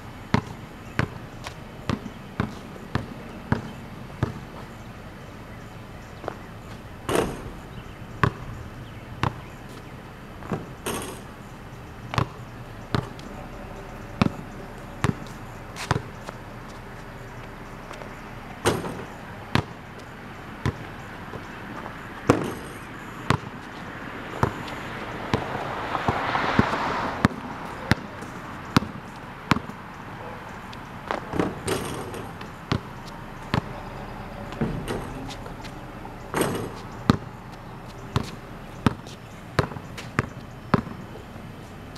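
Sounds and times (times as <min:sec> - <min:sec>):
basketball bouncing on concrete: 0:00.3 - 0:04.8, 0:06.2 - 0:08.6, 0:09.2 - 0:20.0, 0:20.6 - 0:29.8, 0:30.6 - 0:41.2.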